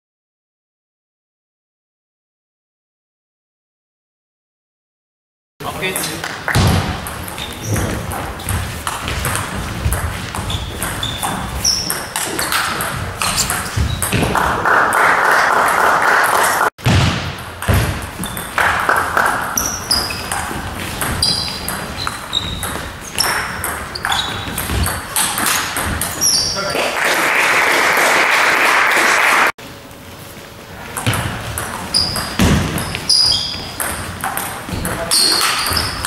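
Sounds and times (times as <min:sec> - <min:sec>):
short high squeaks: 0:10.5 - 0:12.6, 0:19.6 - 0:20.4, 0:21.2 - 0:26.7, 0:31.9 - 0:33.8, 0:35.1 - 0:36.0.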